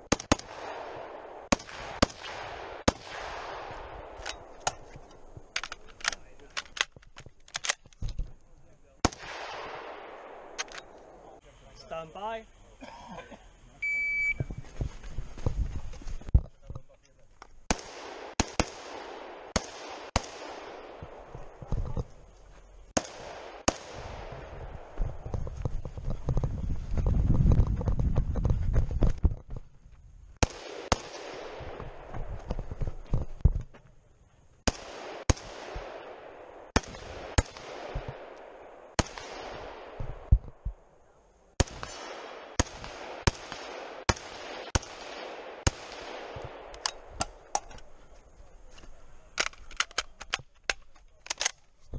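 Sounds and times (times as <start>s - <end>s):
rifle shots with echo: 0.0s - 6.9s, 9.0s - 11.4s, 17.7s - 22.1s, 22.9s - 25.4s, 30.4s - 32.7s, 34.6s - 48.0s.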